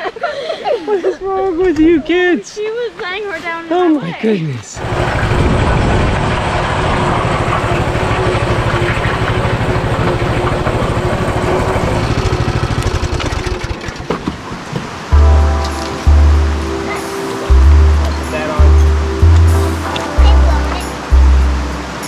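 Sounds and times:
motor running with low pulsing: 0:04.8 - 0:14.0, 0:17.5 - 0:21.8.

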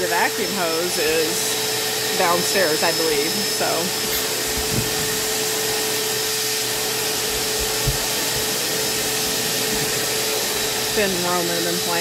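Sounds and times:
shop vacuum running: 0:00.0 - 0:12.0
soft low thumps: 0:04.4 - 0:05.3, 0:07.3 - 0:08.5.

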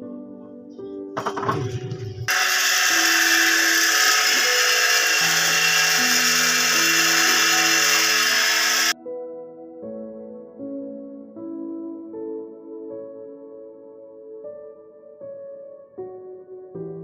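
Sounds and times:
soft background music: 0:00.0 - 0:17.0
hose water spraying: 0:02.2 - 0:09.0.

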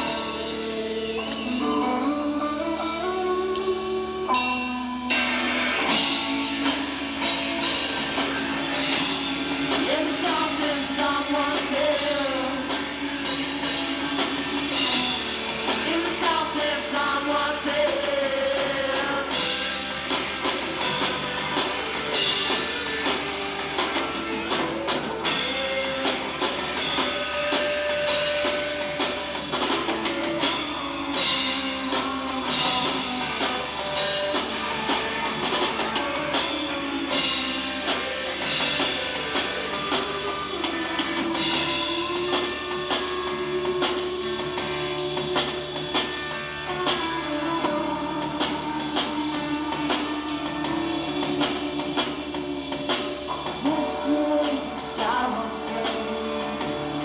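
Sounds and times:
drum kit with cymbal crashes: 0:00.0 - 0:57.0
electric guitars: 0:00.0 - 0:57.0
person singing: 0:09.7 - 0:13.0, 0:14.6 - 0:19.7, 0:39.8 - 0:57.0.

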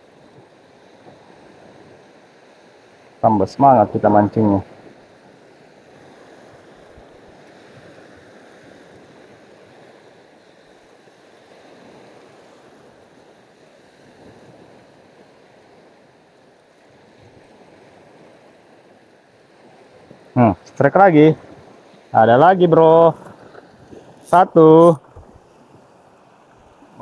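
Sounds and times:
small waves washing on beach: 0:00.0 - 0:27.0.

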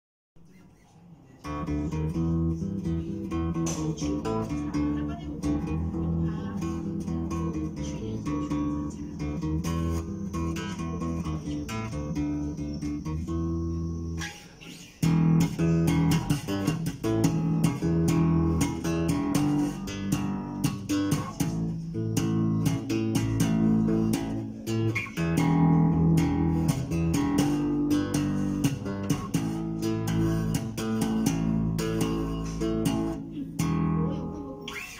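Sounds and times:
slapped electric bass line: 0:01.5 - 0:14.3, 0:15.0 - 0:34.4.

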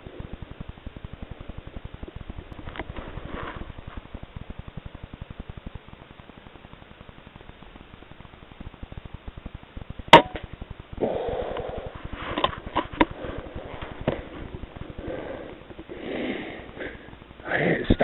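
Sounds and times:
rustling: 0:00.0 - 0:04.8, 0:11.0 - 0:17.3.

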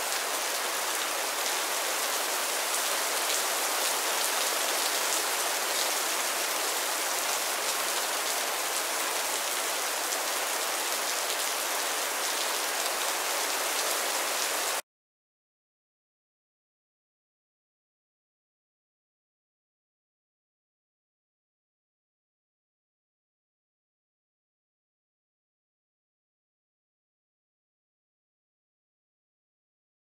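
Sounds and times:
steady rain falling: 0:00.0 - 0:14.8.

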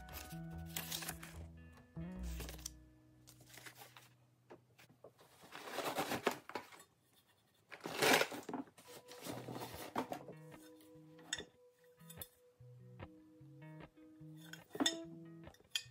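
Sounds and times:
packaging rustling in cardboard box: 0:00.0 - 0:01.5, 0:05.2 - 0:06.8, 0:07.8 - 0:10.2
background music: 0:00.0 - 0:04.4, 0:08.7 - 0:15.9.

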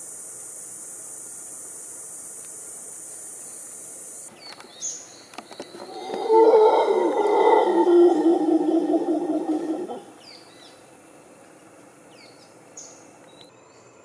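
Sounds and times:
steady high hiss: 0:00.0 - 0:14.0
monkeys howling: 0:05.8 - 0:10.1.

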